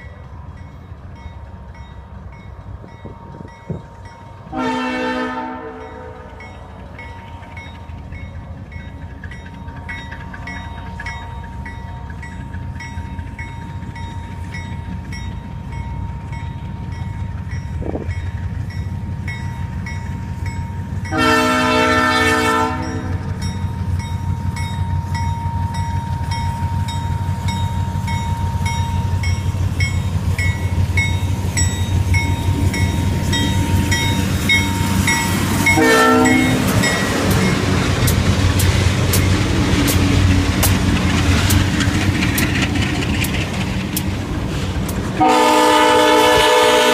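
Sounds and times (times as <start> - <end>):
locomotive engine rumble: 0.0 - 46.9
locomotive horn blast: 4.5 - 6.3, 21.1 - 23.3, 35.6 - 36.8, 45.2 - 46.9.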